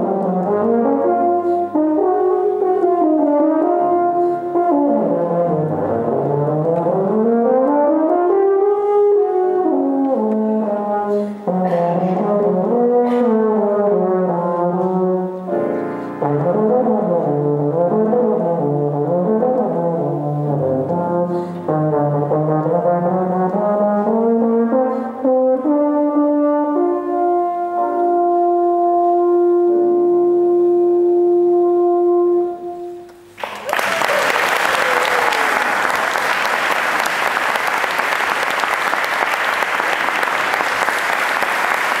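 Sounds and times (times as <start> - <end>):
brass band with euphonium solo: 0.0 - 33.0
audience applause: 33.4 - 42.0.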